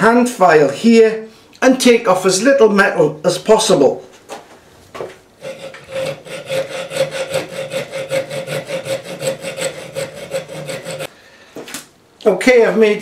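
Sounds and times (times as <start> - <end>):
file rasping on steel: 5.4 - 11.1.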